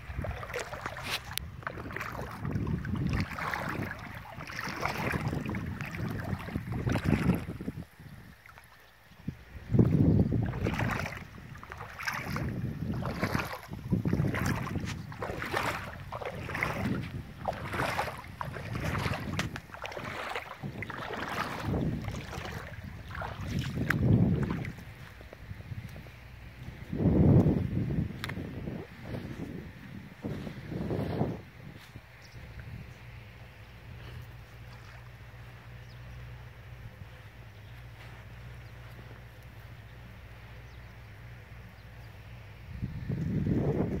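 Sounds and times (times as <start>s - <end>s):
wind on microphone: 0.0s - 8.5s, 9.1s - 41.0s, 41.8s - 44.0s
footsteps splashing through water: 0.0s - 9.0s, 9.7s - 26.8s, 34.2s - 35.8s.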